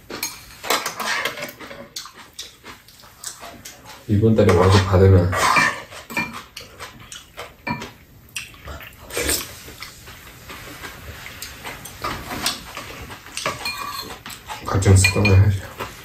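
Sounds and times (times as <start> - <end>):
utensils clinking against bowls: 0.1 - 2.5, 3.2 - 8.0, 11.8 - 16.0.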